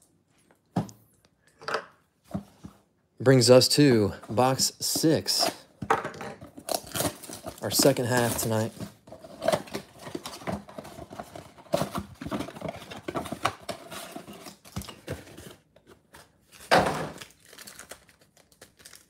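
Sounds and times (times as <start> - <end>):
rustling scrape of packs: 6.8 - 15.6.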